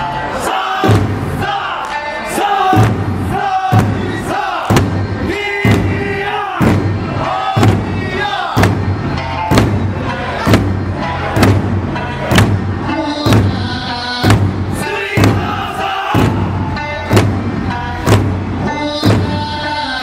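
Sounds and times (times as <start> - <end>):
folk song singing: 0.0 - 20.0
drums beating: 0.8 - 20.0.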